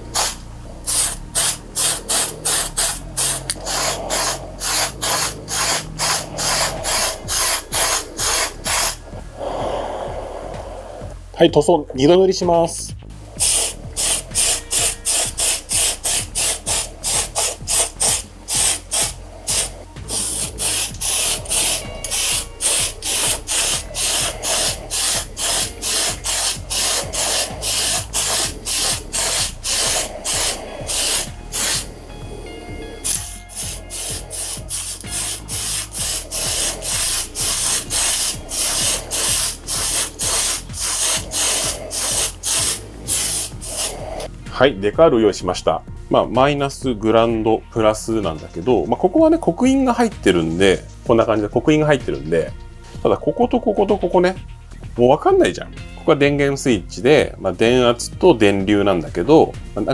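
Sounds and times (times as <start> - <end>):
spray paint can spraying: 0.0 - 9.9, 13.3 - 32.0, 33.0 - 44.3.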